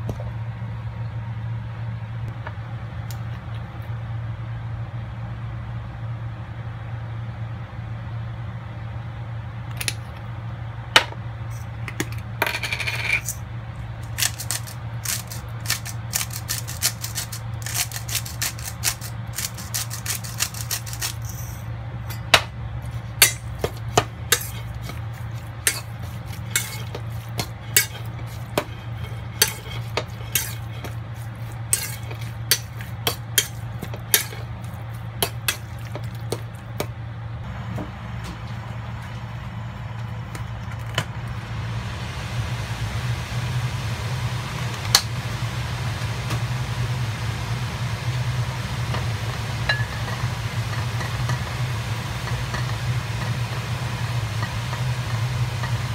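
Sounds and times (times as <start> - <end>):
steady low hum: 0.0 - 55.9
spice grinder clicking and rasping: 14.0 - 21.5, 23.2 - 35.8.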